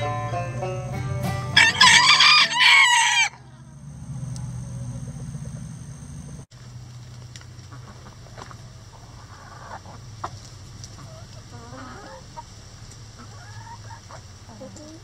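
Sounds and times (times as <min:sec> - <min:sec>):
banjo tune: 0:00.0 - 0:02.0
rooster crowing: 0:01.6 - 0:03.8.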